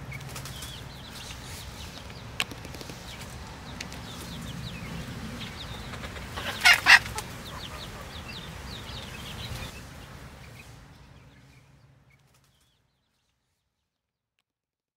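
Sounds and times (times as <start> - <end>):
chickens clucking: 0.0 - 10.8
chicken squawk: 5.9 - 8.3.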